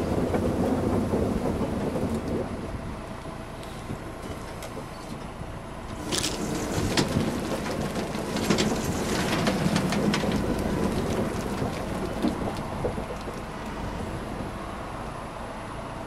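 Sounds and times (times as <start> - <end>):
tractor and harvester running: 0.0 - 16.0
potatoes tumbling and rattling: 3.9 - 14.6.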